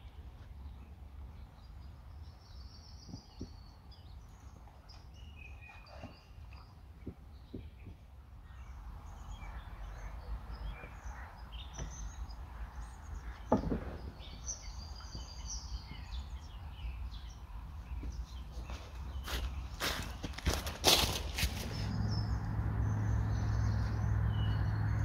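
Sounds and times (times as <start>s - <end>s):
small birds chirping: 0.0s - 25.0s
steady low rumble: 21.3s - 25.0s.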